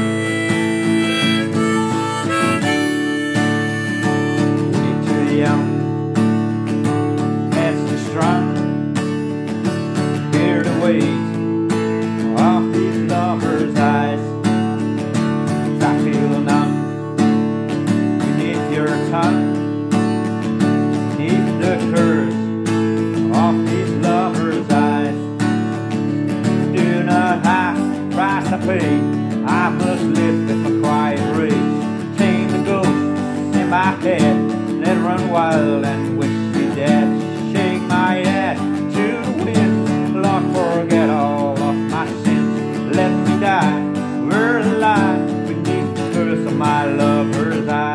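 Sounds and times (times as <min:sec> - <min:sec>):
harmonica melody: 0:00.0 - 0:05.6
acoustic guitar strumming: 0:00.0 - 0:47.9.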